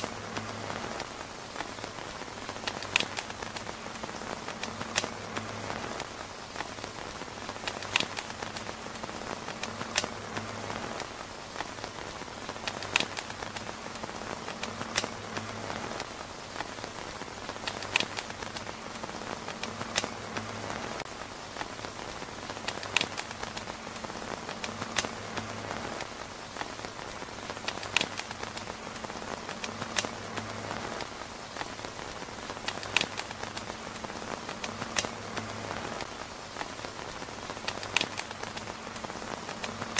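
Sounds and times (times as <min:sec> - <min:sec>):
rain pattering on tent roof: 0:00.0 - 0:39.9
sharp pops: 0:00.0 - 0:39.9.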